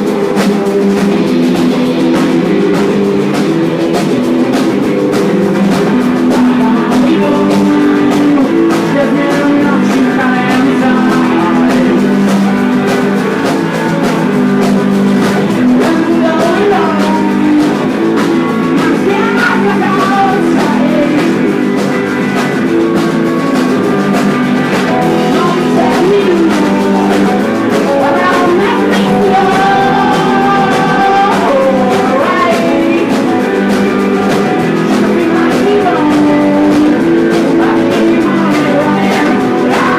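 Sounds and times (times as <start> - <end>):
person singing: 0.0 - 22.6, 23.3 - 39.9
drum kit: 0.0 - 39.9
guitars: 0.0 - 39.9.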